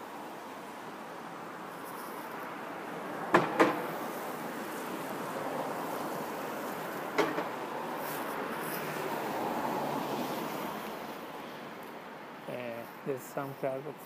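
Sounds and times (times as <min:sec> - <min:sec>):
tyres hissing on wet street: 0:00.0 - 0:14.0
sharp knocks: 0:03.3 - 0:03.9, 0:07.2 - 0:07.6.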